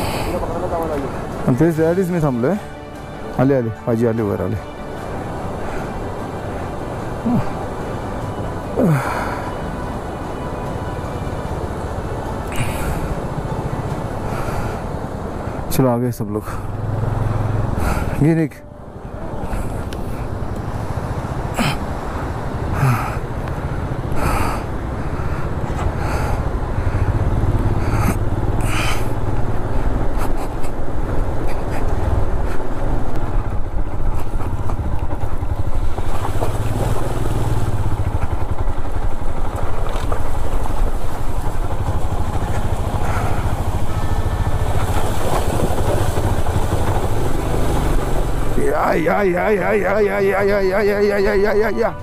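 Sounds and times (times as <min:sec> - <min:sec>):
motorcycle engine running: 0:32.1 - 0:51.7.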